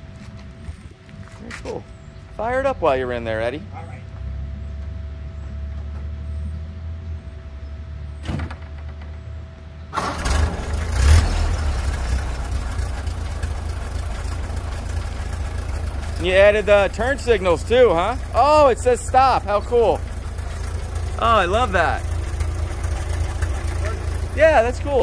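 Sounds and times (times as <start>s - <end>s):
car engine starting and running: 9.8s - 25.0s
engine click: 10.0s - 25.0s.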